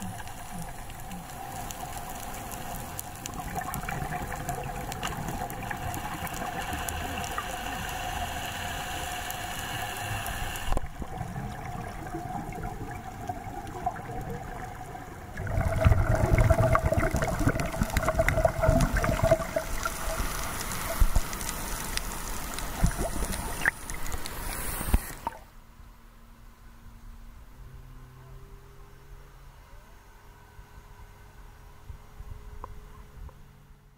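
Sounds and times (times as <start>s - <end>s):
scuba exhaust bubbles gurgling: 0.0s - 25.4s
underwater hum with hiss: 0.0s - 25.6s.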